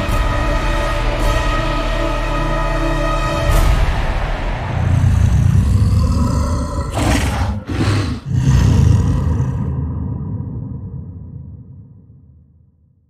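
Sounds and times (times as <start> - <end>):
monster roaring: 4.8 - 11.0.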